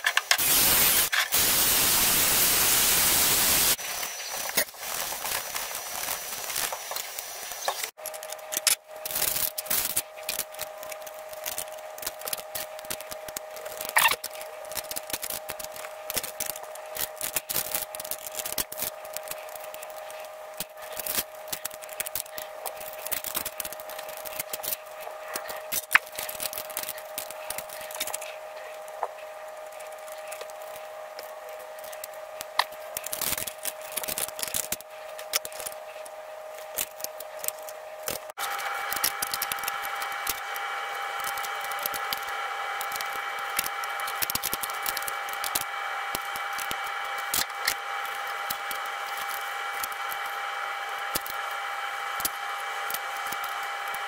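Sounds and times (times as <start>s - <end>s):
faint steady hum: 0.0s - 54.0s
metal parts clicking and scraping: 4.0s - 28.8s, 29.7s - 38.3s.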